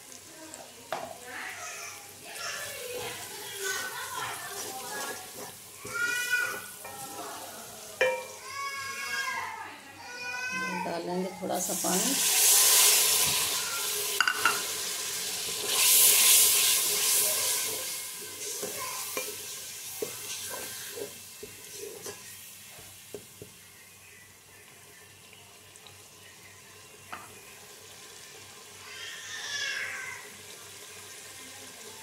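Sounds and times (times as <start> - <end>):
water sizzling in hot oil: 0.0 - 9.5, 10.8 - 32.0
spoon scraping a pot: 15.6 - 22.4.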